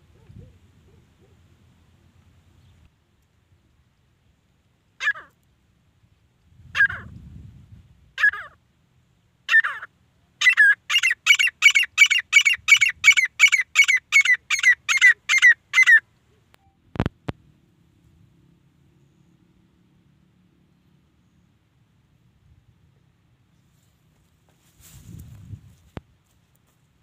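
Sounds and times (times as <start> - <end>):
francolin calling: 9.5 - 16.8.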